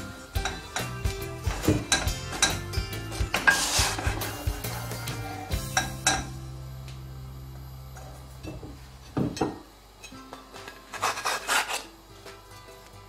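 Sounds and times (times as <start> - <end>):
background music: 0.0 - 8.5
spatula scraping frying pan: 0.4 - 5.9, 10.6 - 11.9.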